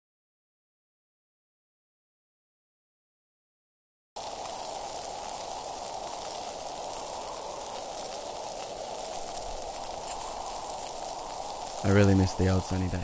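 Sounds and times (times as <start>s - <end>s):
distant surf hiss: 4.2s - 13.0s.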